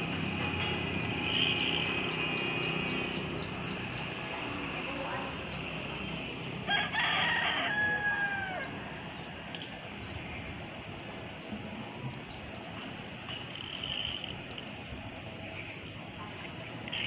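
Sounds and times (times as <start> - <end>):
bird chirping: 0.4 - 4.3
rooster crowing: 6.6 - 9.0.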